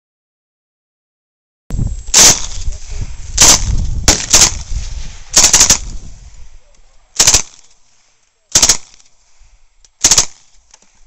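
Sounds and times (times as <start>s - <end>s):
submachine gun firing bursts: 2.1s - 2.6s, 3.4s - 6.0s, 7.2s - 7.7s, 8.5s - 9.0s, 10.0s - 10.6s.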